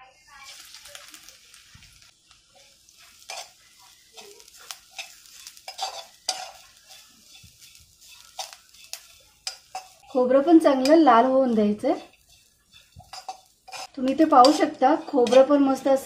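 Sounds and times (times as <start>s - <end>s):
light sizzle in a pan: 0.0s - 16.0s
utensil scraping and tapping pan: 3.0s - 11.1s, 11.7s - 16.0s.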